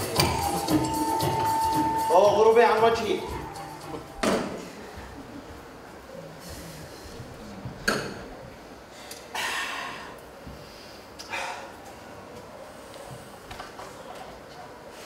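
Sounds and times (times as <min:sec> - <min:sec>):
sharp breathy exhales: 0:09.0 - 0:11.8.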